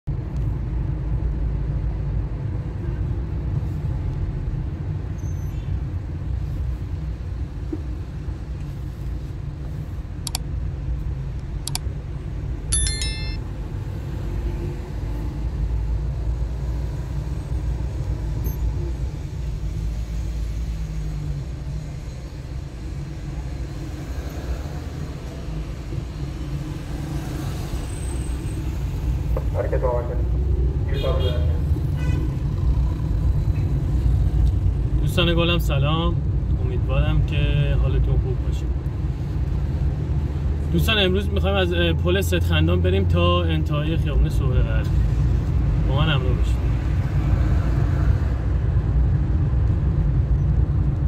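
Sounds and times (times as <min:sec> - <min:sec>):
car road and engine rumble: 0:00.1 - 0:51.0
short high beep: 0:12.7 - 0:13.4.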